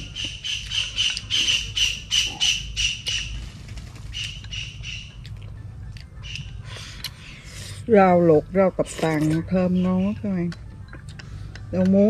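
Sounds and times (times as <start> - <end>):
bird calling in rapid high notes: 0.0 - 3.4, 4.1 - 5.3.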